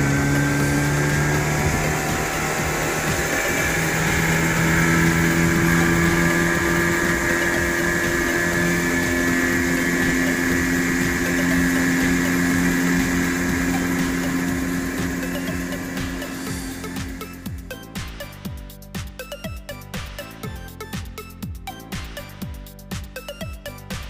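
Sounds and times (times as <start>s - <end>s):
outboard motor running: 0.0s - 24.0s.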